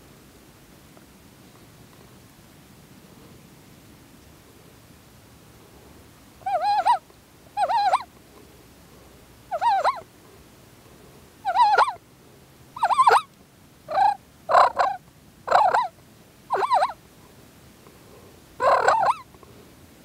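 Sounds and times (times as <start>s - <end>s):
turkey gobbling: 6.5s - 7.0s, 7.6s - 8.1s, 9.5s - 10.0s, 11.5s - 12.0s, 12.8s - 13.3s, 13.9s - 15.9s, 16.5s - 17.0s, 18.6s - 19.3s.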